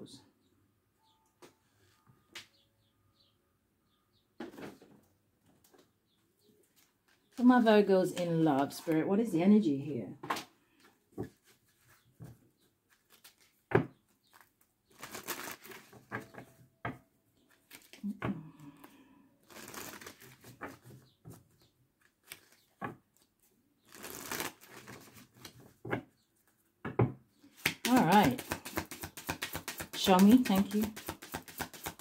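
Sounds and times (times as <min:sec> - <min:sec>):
cards shuffling: 0:12.9 - 0:13.7, 0:14.3 - 0:16.4, 0:17.5 - 0:18.9, 0:19.5 - 0:20.9, 0:22.0 - 0:23.3, 0:23.9 - 0:25.7, 0:27.5 - 0:32.0
cards tapping and clicking: 0:27.6 - 0:32.0.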